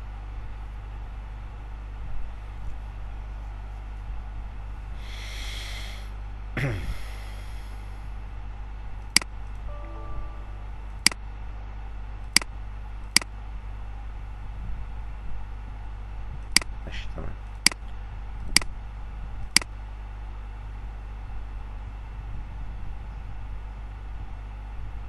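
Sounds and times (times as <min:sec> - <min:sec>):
steady low hum: 0:00.0 - 0:11.6.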